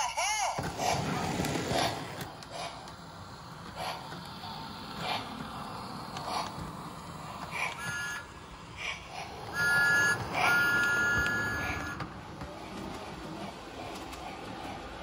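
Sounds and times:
model train rumbling on track: 0.4s - 15.0s
toy train whistle toot: 7.5s - 8.5s, 9.5s - 12.1s.

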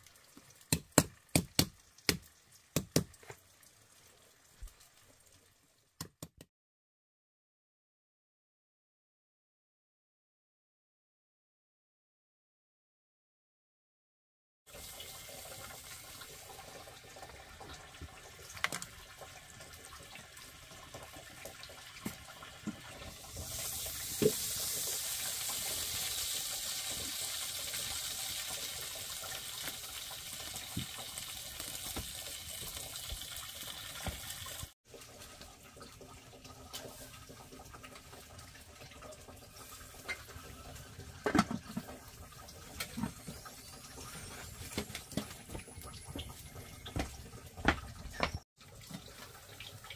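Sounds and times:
running water: 14.7s - 49.9s.

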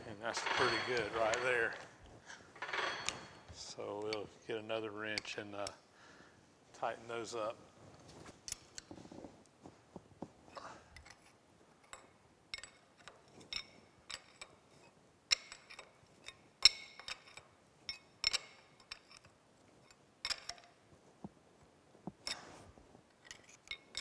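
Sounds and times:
metal wrenches clinking: 0.0s - 2.0s, 2.6s - 4.4s, 10.9s - 20.8s, 22.2s - 24.0s.

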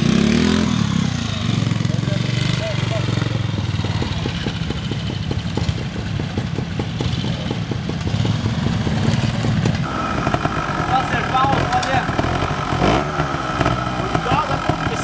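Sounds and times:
motorcycle engine idling: 0.0s - 15.0s.

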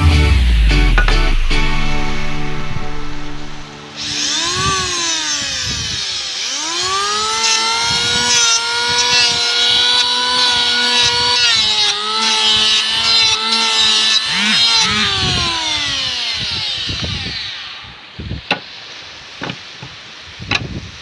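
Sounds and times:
electric hand planer motor whining: 3.2s - 20.0s
planer blade rasping wood: 3.9s - 18.8s.

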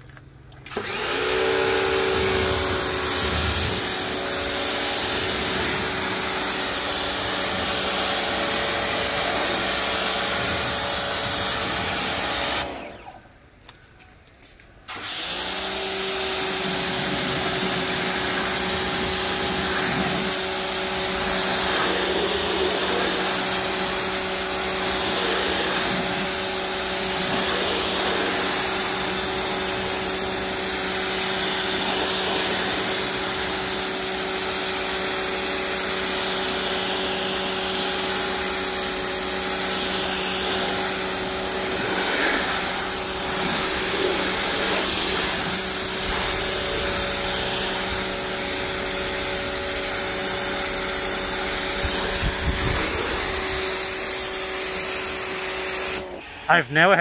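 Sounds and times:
pressure washer motor hum: 0.1s - 13.2s, 14.9s - 56.4s
water spray hissing: 16.6s - 34.0s, 34.6s - 56.1s.

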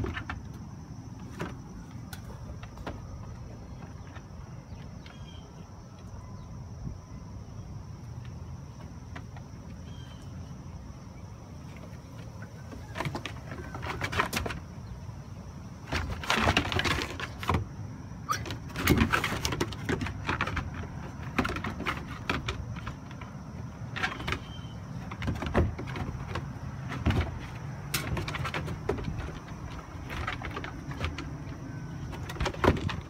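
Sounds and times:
dogs scuffling on wooden deck: 12.2s - 14.7s, 15.8s - 17.7s, 18.3s - 33.0s.

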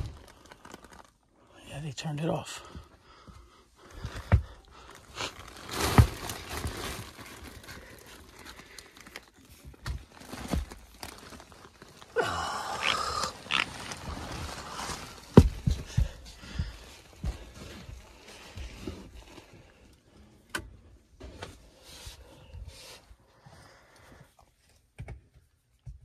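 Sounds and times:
footsteps on plywood: 2.7s - 4.6s, 15.1s - 18.0s.

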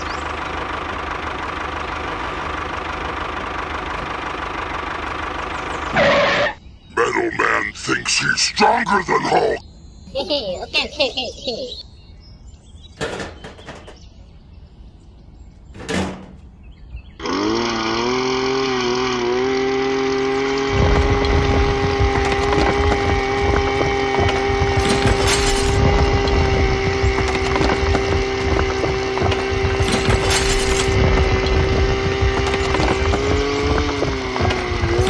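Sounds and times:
drill grinding rock: 17.2s - 35.0s
small electric motor whine: 17.2s - 35.0s.

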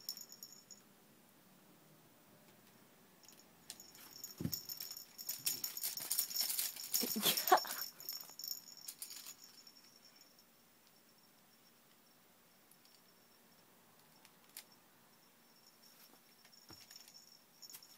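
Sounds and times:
baby toys rattling and clacking: 3.3s - 9.6s.

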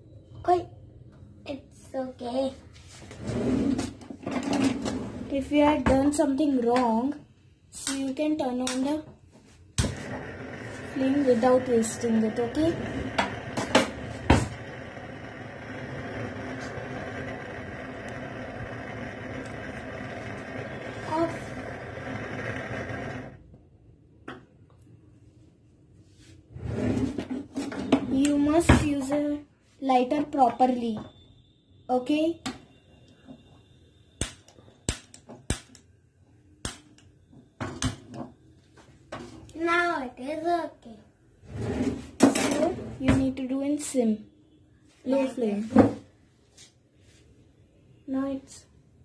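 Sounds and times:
gas stove burner hissing: 9.8s - 23.4s.

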